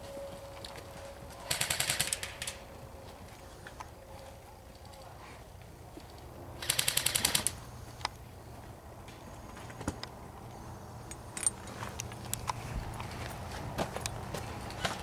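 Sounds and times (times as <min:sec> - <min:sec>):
airsoft rifle full-auto burst: 0:01.4 - 0:02.6, 0:06.6 - 0:07.6.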